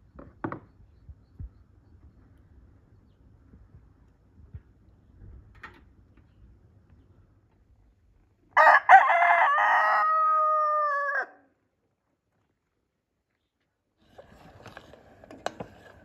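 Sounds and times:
rooster crowing: 8.6 - 11.5.

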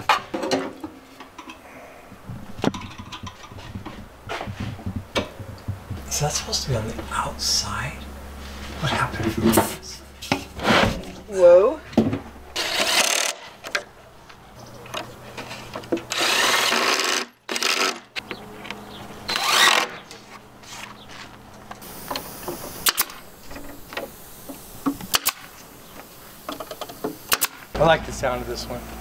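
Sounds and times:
cordless drill driving screws: 12.6 - 13.4, 16.1 - 18.0, 19.3 - 20.0.

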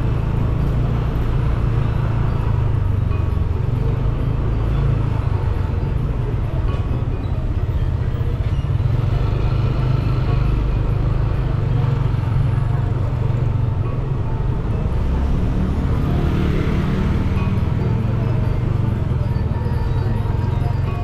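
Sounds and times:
street traffic: 0.0 - 21.0
vehicle engine and tyre noise: 0.0 - 21.0.

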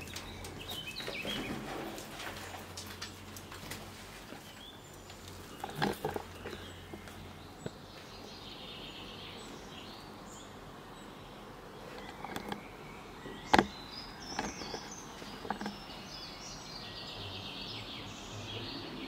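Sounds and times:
birds chirping faintly: 0.0 - 19.0
sharp knocks and clicks: 5.5 - 7.8, 12.0 - 12.6, 13.3 - 15.8.

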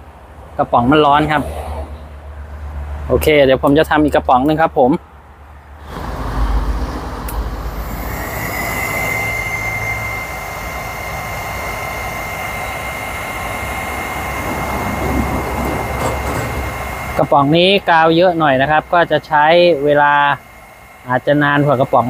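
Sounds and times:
hot air gun blowing: 5.8 - 22.0.

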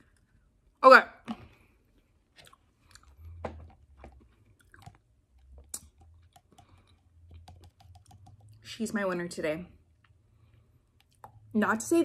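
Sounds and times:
plastic cups handled: 1.2 - 8.5
person chewing candy: 1.3 - 8.6.

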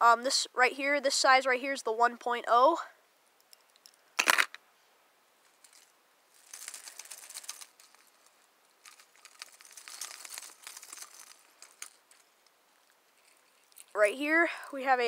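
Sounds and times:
faint crinkly rustling: 4.8 - 15.0.

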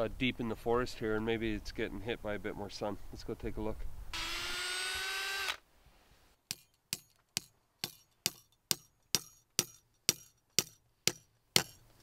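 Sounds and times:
drill whine: 4.2 - 5.6.

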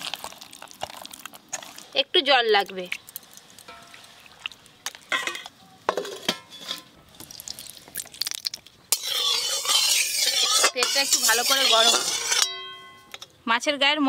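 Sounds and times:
oil sizzling: 0.0 - 5.6, 6.3 - 12.5
hands squishing fish in a bowl: 2.5 - 5.1
clicks and scrapes: 8.9 - 12.5.

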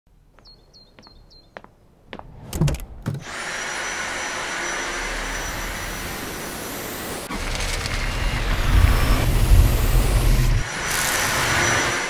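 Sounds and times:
vacuum cleaner motor whining: 3.2 - 12.0.

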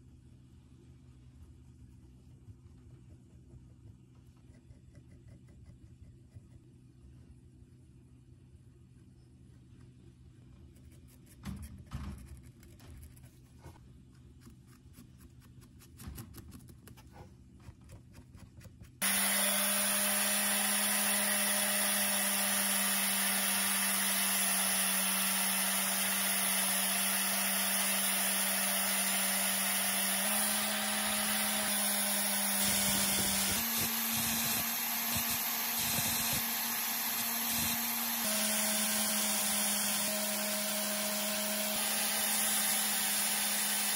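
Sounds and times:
electric power tool running: 19.0 - 43.9.

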